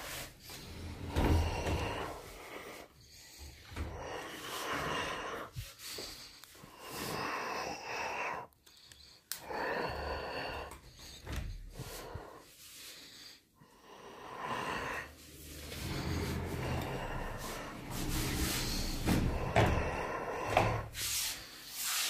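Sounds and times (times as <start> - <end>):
sliding wardrobe doors rolling: 0.0 - 2.4, 14.8 - 21.2.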